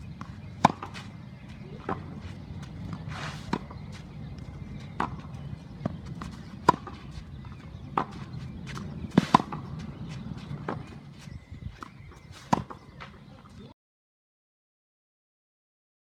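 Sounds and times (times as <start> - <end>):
tennis ball bouncing on clay: 0.0 - 13.5
tennis ball off racket strings: 0.2 - 9.9.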